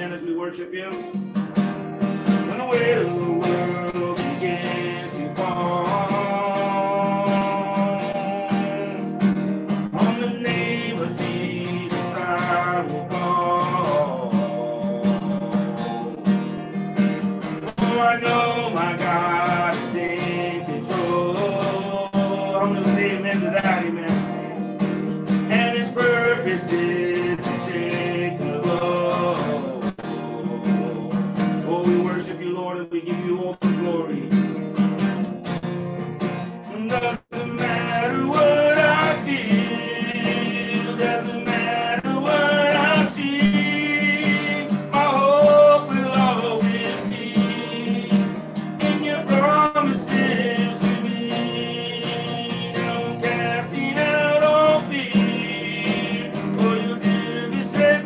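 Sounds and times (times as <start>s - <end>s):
man singing: 0.0s - 35.0s, 36.0s - 58.0s
acoustic guitar strumming: 0.0s - 58.0s.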